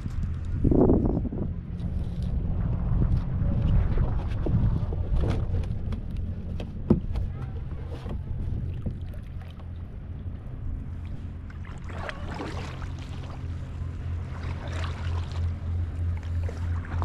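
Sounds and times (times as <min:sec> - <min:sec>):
steady low hum: 0:00.0 - 0:17.0
paddle splashing in water: 0:06.8 - 0:09.9, 0:10.9 - 0:17.0.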